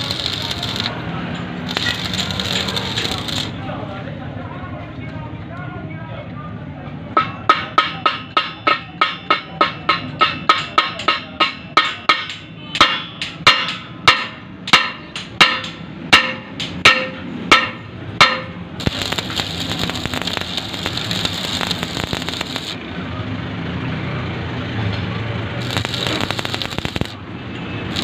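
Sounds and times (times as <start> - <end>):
arc welder crackling hiss: 0.0 - 1.0, 1.7 - 3.6, 18.8 - 22.8, 25.6 - 27.2
hammer striking steel plate: 7.2 - 22.8.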